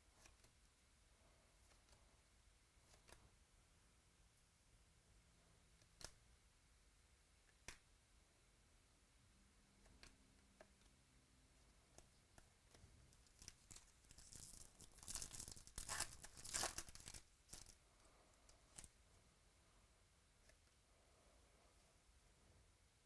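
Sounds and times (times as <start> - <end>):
faint clicks of cards: 5.8 - 6.2
wrapper tearing and crinkling: 13.3 - 17.7.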